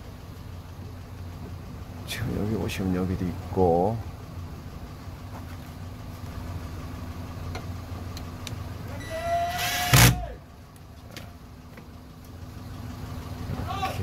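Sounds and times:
drill motor whining: 0:09.0 - 0:10.3.

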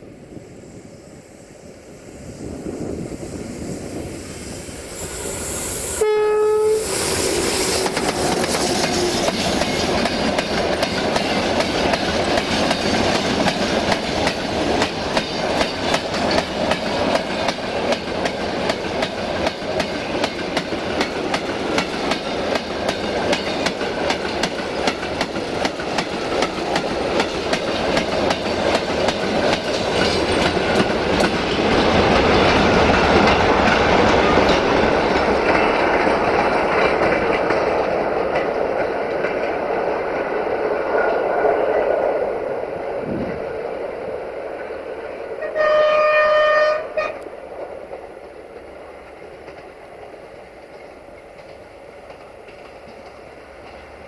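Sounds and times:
locomotive horn blast: 0:06.0 - 0:07.9, 0:45.4 - 0:47.2
train wheels clacking on rails: 0:06.8 - 0:42.2, 0:45.5 - 0:54.0.

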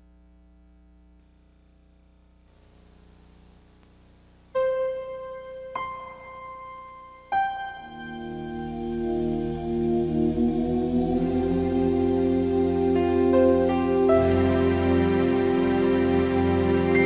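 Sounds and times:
faint hiss: 0:01.2 - 0:17.0
piano-like keyboard notes: 0:04.6 - 0:17.0.

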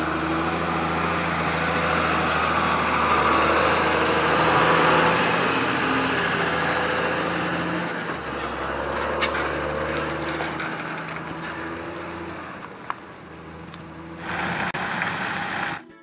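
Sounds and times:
tractor diesel engine running: 0:00.0 - 0:16.0
loud rushing noise: 0:14.2 - 0:15.8.

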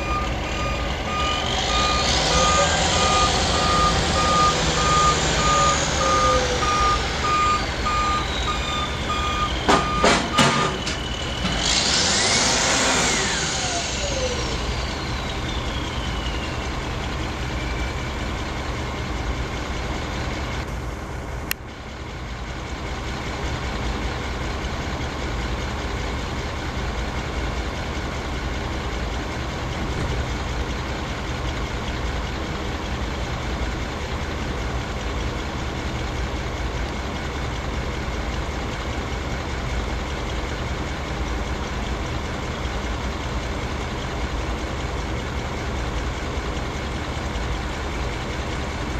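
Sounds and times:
reversing alarm beeping: 0:00.0 - 0:11.6, 0:13.1 - 0:18.1
diesel truck engine: 0:00.0 - 0:48.9.

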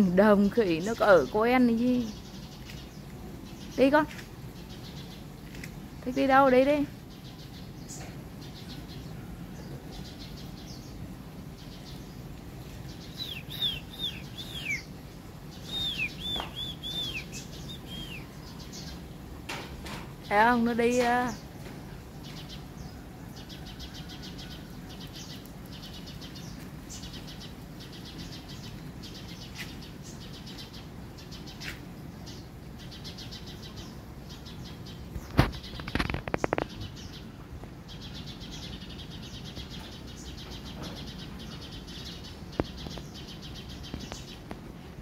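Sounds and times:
high chirring calls: 0:12.8 - 0:19.0.

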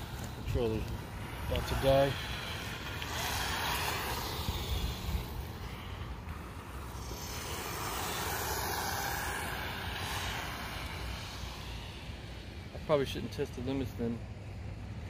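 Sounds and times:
toy truck motor whining: 0:01.4 - 0:12.4.

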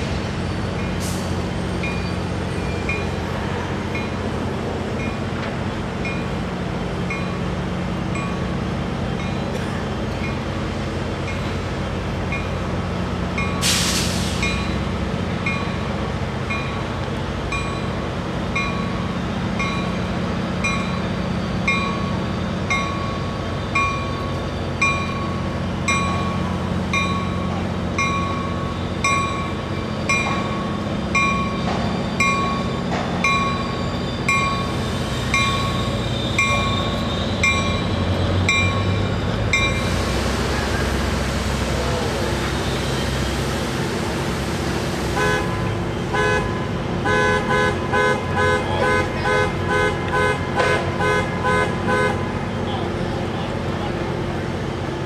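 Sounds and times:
train rumble: 0:00.0 - 0:55.0
train bell ringing: 0:01.8 - 0:13.8, 0:14.4 - 0:40.1
air hiss: 0:13.6 - 0:14.6.

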